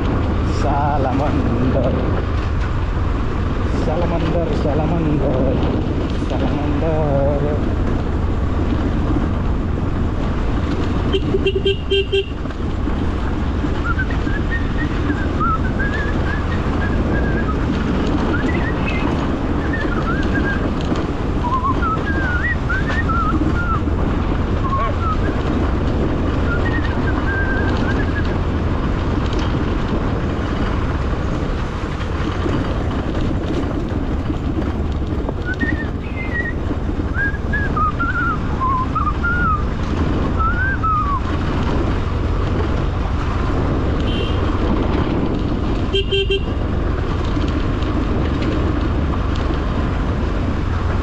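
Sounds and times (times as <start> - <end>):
motorcycle engine running: 0.0 - 51.0
tyres on gravel road: 0.0 - 51.0
wind noise: 0.0 - 51.0.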